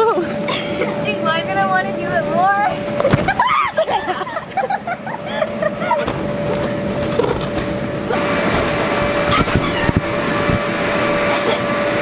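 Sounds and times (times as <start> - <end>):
air blower droning: 0.0 - 12.0
children calling out: 9.2 - 10.2.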